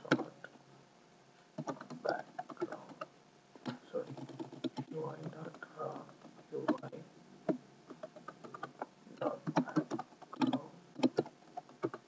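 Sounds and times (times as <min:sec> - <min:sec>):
keyboard keystroke clicks: 0:07.5 - 0:12.0.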